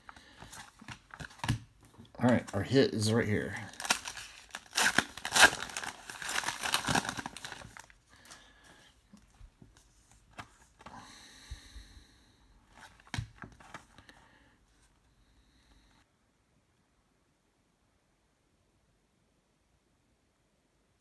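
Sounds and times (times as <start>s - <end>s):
cards rustling: 0.0s - 11.0s, 12.7s - 14.2s
foil wrapper crinkling: 0.1s - 8.5s.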